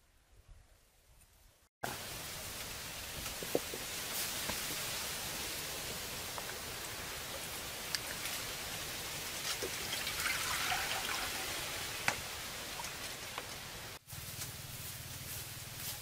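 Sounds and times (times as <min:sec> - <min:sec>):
steady hiss: 0:00.0 - 0:16.0
water splashing and sizzling in wok: 0:01.9 - 0:14.0
burning wood popping: 0:02.5 - 0:10.5.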